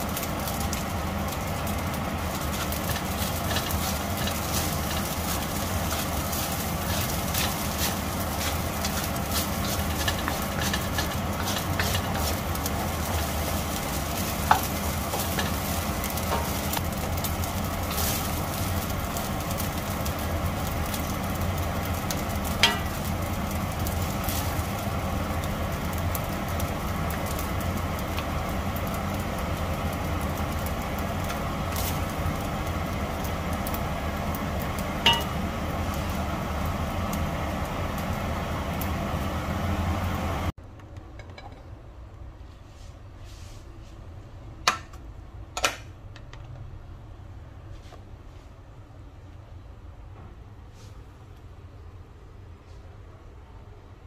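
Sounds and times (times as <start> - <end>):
wooden spatula scraping wok: 0.0 - 20.2, 42.5 - 44.0
frying sizzle: 0.0 - 40.6
steady low hum: 0.0 - 46.1.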